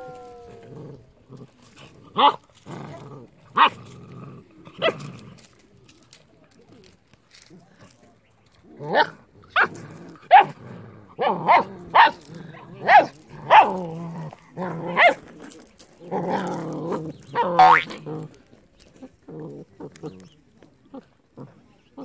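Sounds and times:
puppies growling: 0.0s - 5.6s, 8.8s - 22.0s
puppies yapping: 17.3s - 18.0s.

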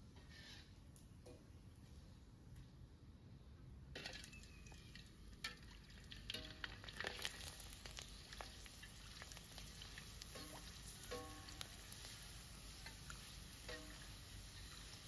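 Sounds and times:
cracker frying in hot oil: 3.9s - 15.0s
metal spatula clinking on wok: 10.4s - 11.6s, 13.6s - 14.1s.

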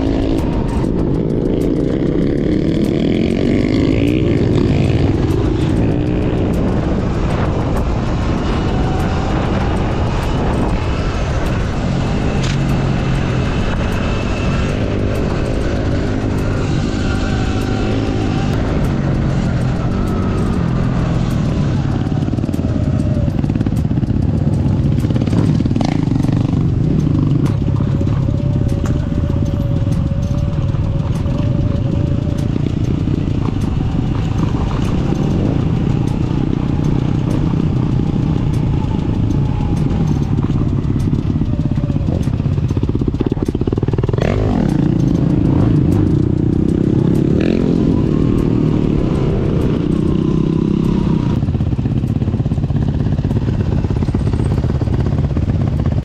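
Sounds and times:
clatters and rattles: 0.0s - 56.0s
off-road motorcycle engine: 0.0s - 56.0s.

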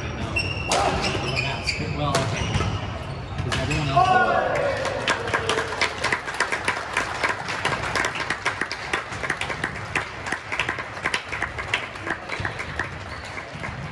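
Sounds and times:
people clapping: 4.3s - 13.9s.

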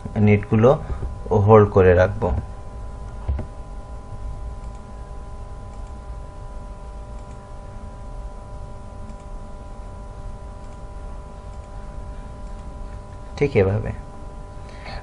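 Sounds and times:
steady hum of fixed tones: 0.0s - 15.0s
computer mouse clicks: 5.7s - 6.0s, 7.1s - 7.4s, 9.1s - 9.3s, 10.6s - 10.8s, 11.5s - 11.8s.

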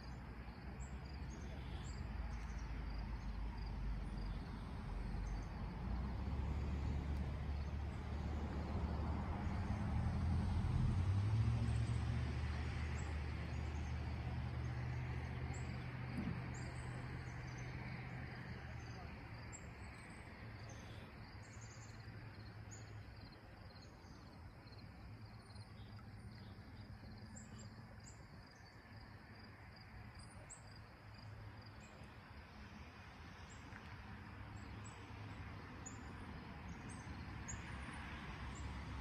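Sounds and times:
engine hum passing by: 0.1s - 28.2s, 31.2s - 39.0s.

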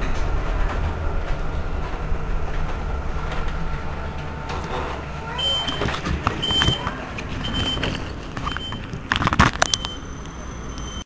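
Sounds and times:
low traffic rumble: 0.0s - 11.0s
high electronic warning beep: 5.3s - 8.9s, 9.6s - 11.0s.

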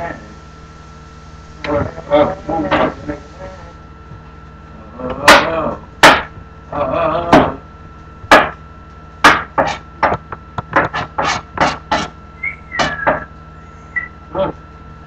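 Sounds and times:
knife chopping on cutting board: 8.3s - 8.6s, 9.2s - 12.1s.

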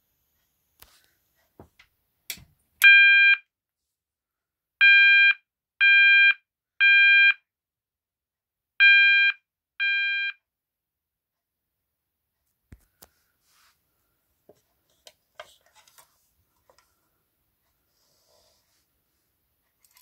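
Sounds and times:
fire alarm short beeps: 8.8s - 10.4s.

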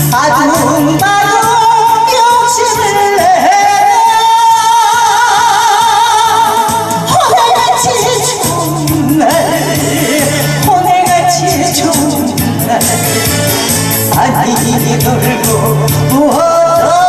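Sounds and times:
woman singing into microphone: 0.0s - 13.5s, 14.1s - 17.0s
backing track with steady beat: 0.0s - 17.0s.

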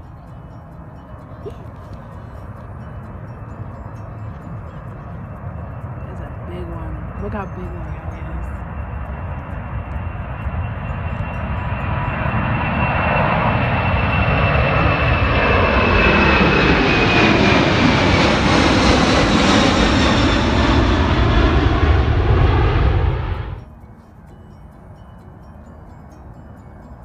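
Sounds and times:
high jet whine: 0.0s - 27.0s
jet engine roar: 5.4s - 23.6s.

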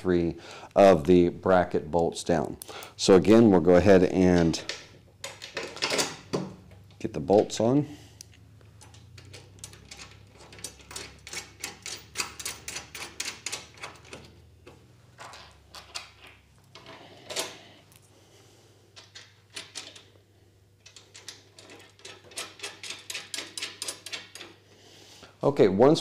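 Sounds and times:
bolts and nuts clicking and tapping: 4.2s - 7.6s, 8.2s - 17.6s, 18.9s - 20.2s, 20.8s - 24.6s.

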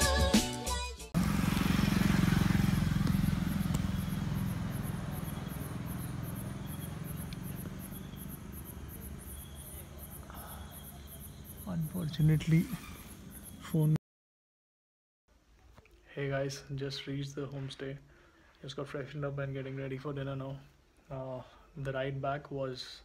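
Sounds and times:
background music: 0.0s - 1.2s
vehicle engine running: 1.2s - 13.6s
crickets chirping: 1.6s - 14.0s.

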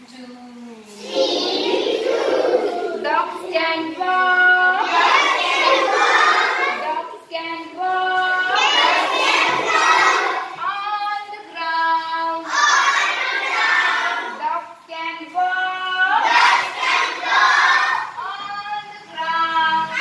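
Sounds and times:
children singing in unison: 0.9s - 20.0s.

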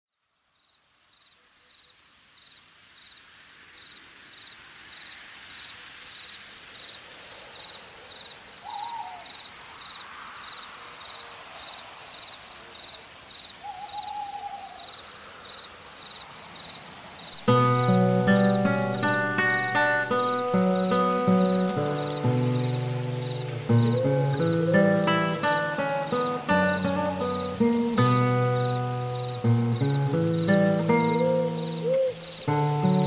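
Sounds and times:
crickets chirping: 0.2s - 33.0s
soft hiss: 0.2s - 33.0s
owl hooting: 8.6s - 9.4s, 13.6s - 14.9s, 23.7s - 26.2s, 30.9s - 32.5s.

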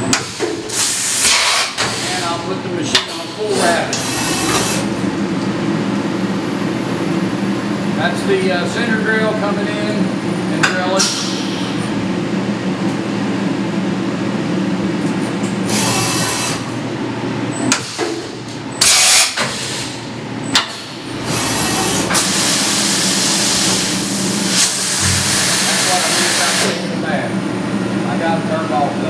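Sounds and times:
machine hum: 0.0s - 18.9s, 19.9s - 29.0s
coolant spraying hiss: 22.1s - 26.9s.

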